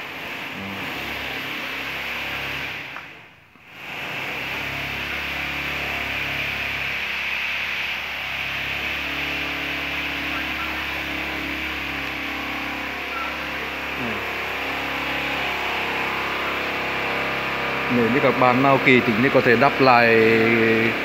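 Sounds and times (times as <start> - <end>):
steady background noise: 0.0 - 21.0
low hum: 8.7 - 21.0.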